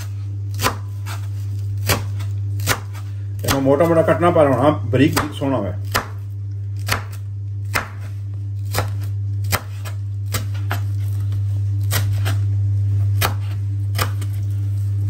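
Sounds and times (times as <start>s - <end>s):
knife chopping on wooden board: 0.0s - 4.1s, 5.0s - 11.2s, 11.8s - 12.4s, 13.2s - 14.4s
low hum: 5.8s - 15.0s.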